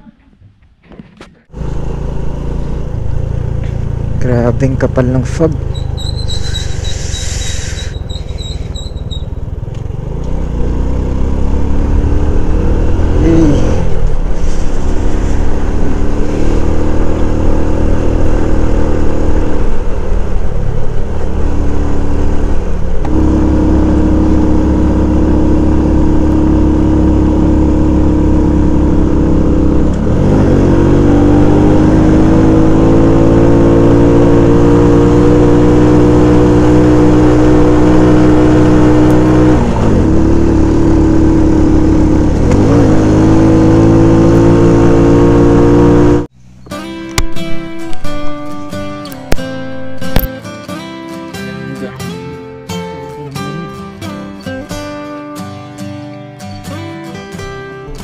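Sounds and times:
motorcycle engine running: 0:01.5 - 0:47.3.

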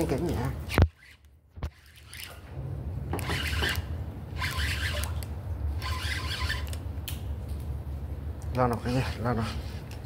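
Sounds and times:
fishing reel cranking: 0:00.7 - 0:02.4, 0:03.2 - 0:06.8
low steady rumble: 0:01.3 - 0:10.0.

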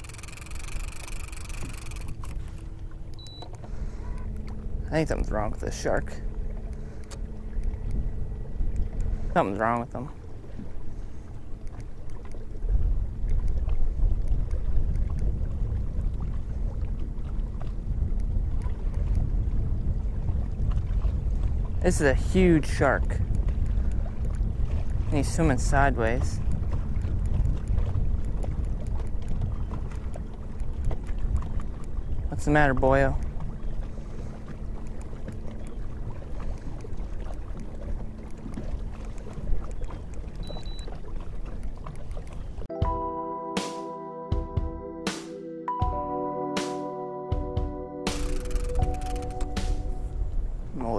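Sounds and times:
small splashy ticks: 0:00.0 - 0:04.6, 0:11.6 - 0:12.6, 0:13.2 - 0:15.3, 0:17.0 - 0:19.2, 0:23.0 - 0:32.1, 0:32.7 - 0:42.7, 0:48.1 - 0:49.6
water lapping against boat hull: 0:00.0 - 0:42.7, 0:48.1 - 0:50.9
wind rumbling on microphone: 0:00.0 - 0:42.7, 0:47.4 - 0:50.9
light ticks: 0:23.2 - 0:24.4, 0:34.8 - 0:35.4.

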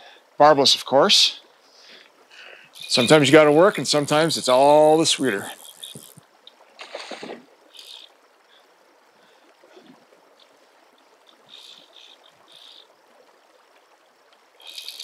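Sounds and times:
faint river water rushing: 0:00.0 - 0:15.0
fishing reel click drag rasping: 0:02.7 - 0:06.2, 0:06.8 - 0:08.1, 0:11.5 - 0:12.8, 0:14.6 - 0:15.0.

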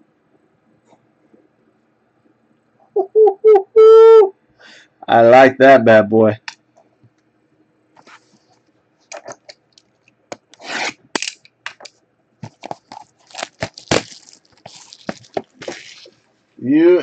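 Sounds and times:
plastic wrap crinkling: 0:12.4 - 0:16.2.

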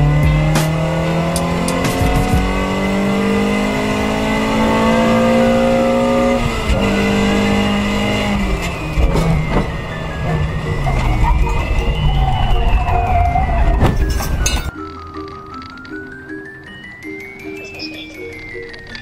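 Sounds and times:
car engine accelerating: 0:00.0 - 0:14.5.

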